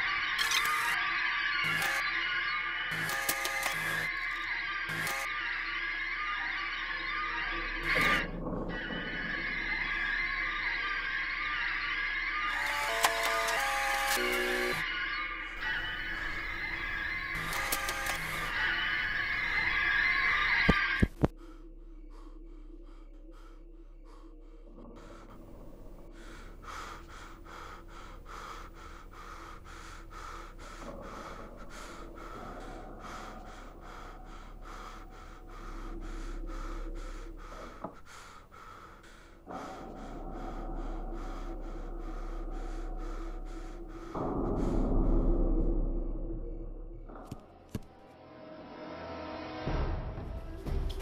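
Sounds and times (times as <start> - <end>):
low hum: 0.0 - 51.0
man breathing hard: 21.1 - 46.3.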